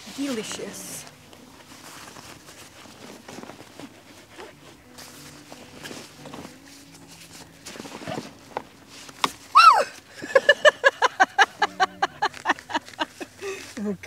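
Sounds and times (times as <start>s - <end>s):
rustling of outdoor gear: 0.0s - 14.0s
loud rising and falling cry: 9.5s - 10.0s
hearty laughter: 10.1s - 13.6s.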